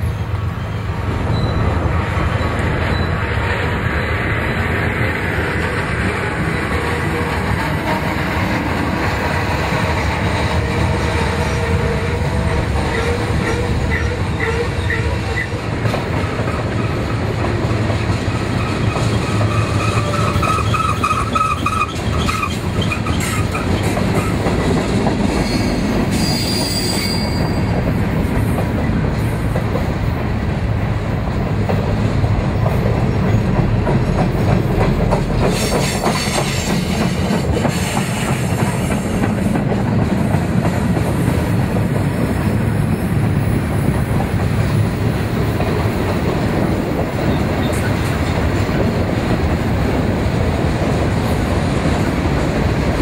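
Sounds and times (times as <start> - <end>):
freight train wheels rumbling on rail: 0.0 - 53.0
high-pitched wheel squeals: 0.1 - 3.2, 25.4 - 27.8.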